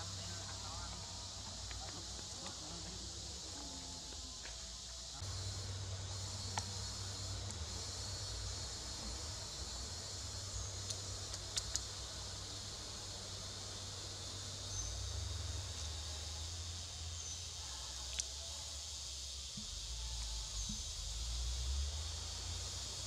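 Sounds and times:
insect chorus: 0.0s - 23.0s
low steady rumble: 0.0s - 23.0s
sharp clicks: 10.8s - 11.9s.

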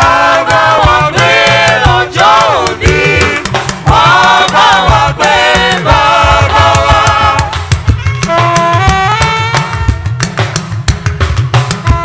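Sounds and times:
choir singing a hymn: 0.0s - 7.6s
live band with bass and percussion: 0.0s - 12.0s.

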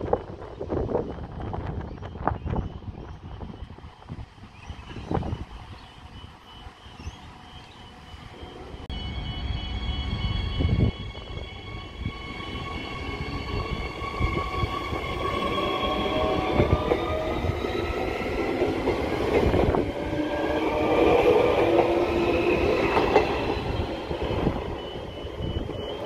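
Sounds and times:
repeating electronic beep: 23.6s - 26.0s.

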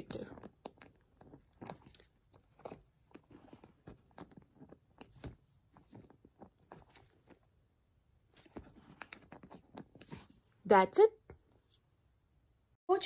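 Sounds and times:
leather bag rustling: 1.3s - 7.5s.

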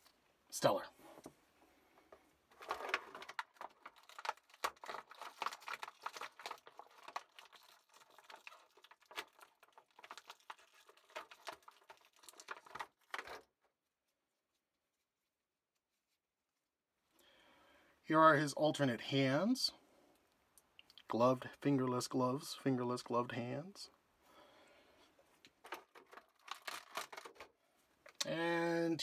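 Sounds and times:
plastic packaging crinkling: 2.5s - 13.6s, 25.4s - 28.2s.

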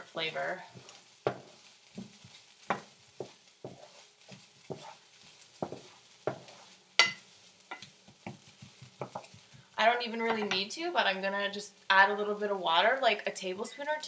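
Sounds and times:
wooden spatula scraping pan: 0.0s - 10.7s
light sizzle: 0.0s - 14.0s.

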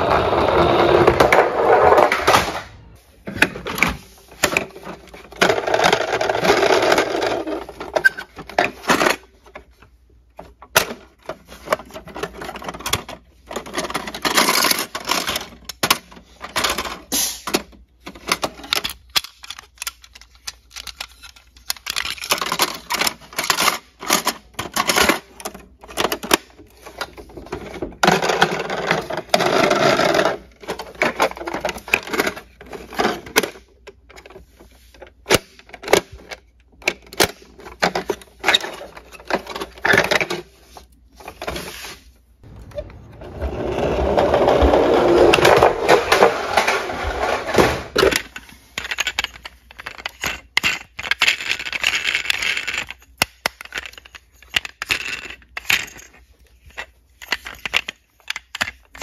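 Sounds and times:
plastic toy clicking and clacking: 10.4s - 34.5s, 47.9s - 59.0s.

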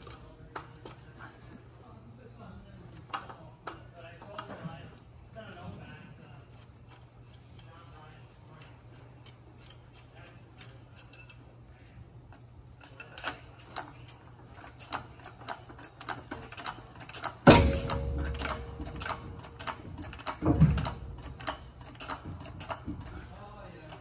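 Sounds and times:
small sharp metal clicks: 12.3s - 24.0s
loud ringing metallic bang: 17.5s - 21.2s
heavy metal knock: 17.5s - 21.6s.

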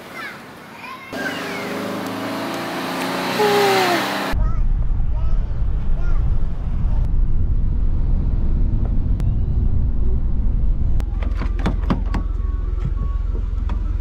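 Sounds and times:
car rumble on road: 1.1s - 14.0s
brief voices: 3.4s - 4.4s.

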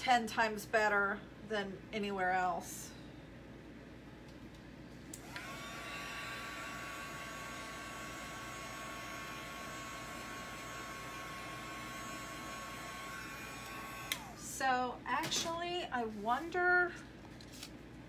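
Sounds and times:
hair dryer motor whine: 5.2s - 14.8s.

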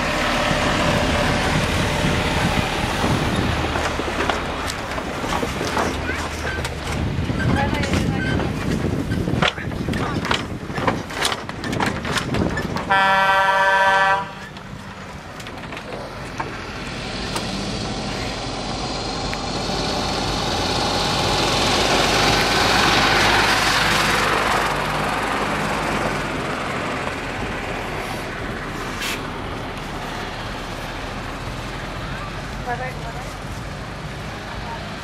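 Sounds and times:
truck driving past: 0.0s - 7.6s, 13.1s - 35.0s
horn blast: 12.9s - 14.4s.

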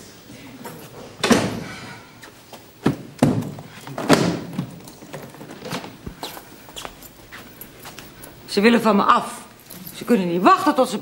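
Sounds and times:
door shutting: 1.2s - 1.7s.

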